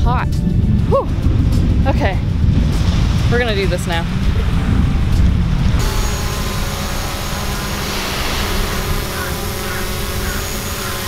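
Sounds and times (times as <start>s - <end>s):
wind buffeting microphone: 0.0s - 11.0s
drone propellers whining: 2.7s - 11.0s.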